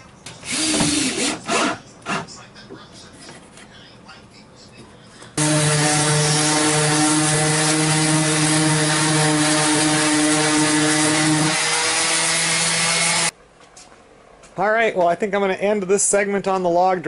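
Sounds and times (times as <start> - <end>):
electric power tool running: 0.5 - 1.4, 5.4 - 13.3.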